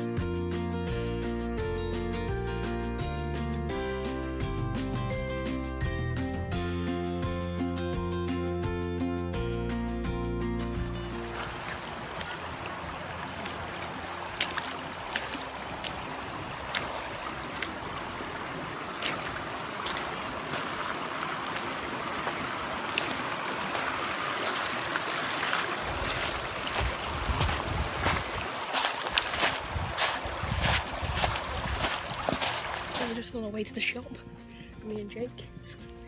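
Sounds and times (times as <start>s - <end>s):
water washing over pebbles: 11.0s - 33.3s
wind rumble on microphone: 25.8s - 28.5s, 29.1s - 32.6s.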